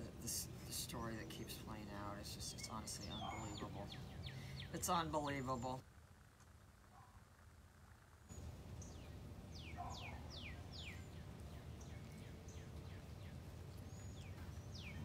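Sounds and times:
small birds whistling: 2.4 - 5.8, 8.3 - 15.0.

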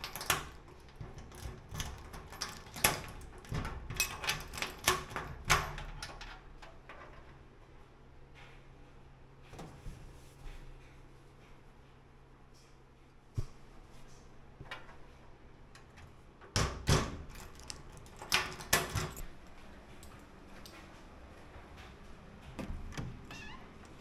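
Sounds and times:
key rattling in lock: 0.0 - 7.2, 16.8 - 20.8.

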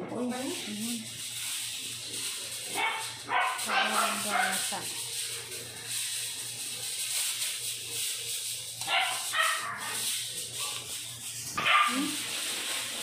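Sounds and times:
dog barking: 2.7 - 4.7, 8.8 - 10.0, 11.6 - 12.2.

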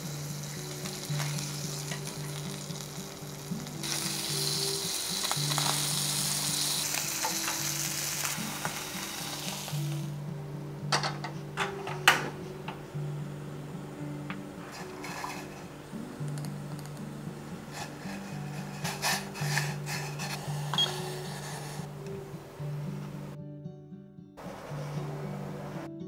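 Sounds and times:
fish sizzling in a frying pan: 0.0 - 10.1, 14.7 - 15.6, 17.7 - 21.8.

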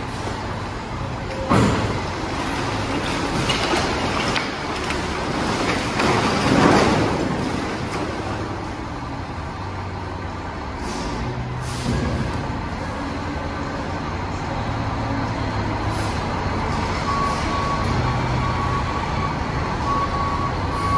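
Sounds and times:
truck engine running: 0.0 - 20.9
trash sliding and tumbling out: 1.7 - 8.5.

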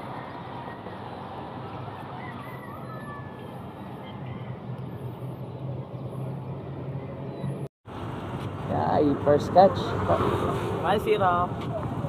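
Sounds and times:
outdoor background noise: 0.0 - 12.0
vehicle engine humming: 0.0 - 12.0.

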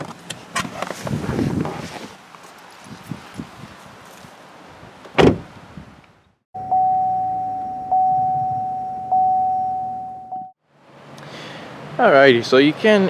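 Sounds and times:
car door thudding shut: 5.2 - 5.5
ringing electronic tone: 6.6 - 10.5.

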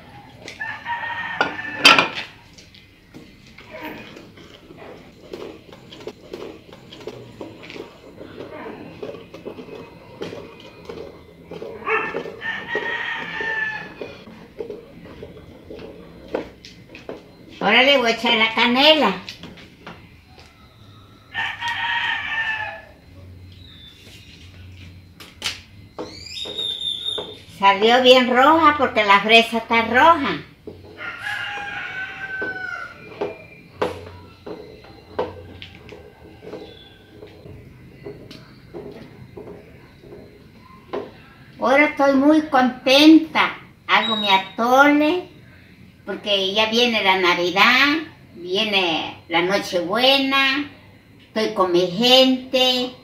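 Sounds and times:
rooster crowing: 0.0 - 2.4, 11.8 - 14.3, 20.3 - 23.1, 30.8 - 37.5
wooden spoon stirring in pot: 0.0 - 53.0.

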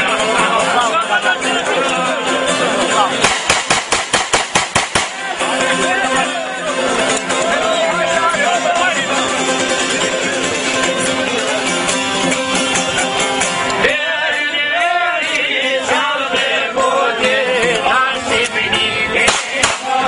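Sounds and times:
instrumental accompaniment: 0.0 - 20.0
man singing with wavering pitch: 5.2 - 20.0.

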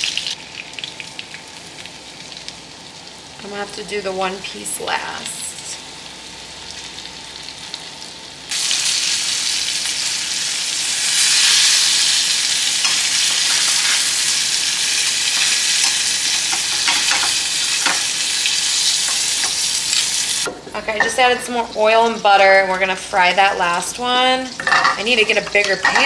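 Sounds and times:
chicken sizzling in oil: 0.0 - 3.6, 5.2 - 20.5.

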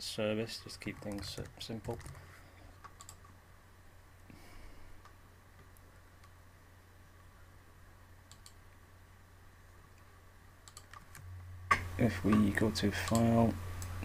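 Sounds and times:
steady low hum: 0.0 - 14.0
computer mouse clicks: 2.8 - 3.3, 8.3 - 8.6, 10.6 - 11.2, 12.3 - 13.9.

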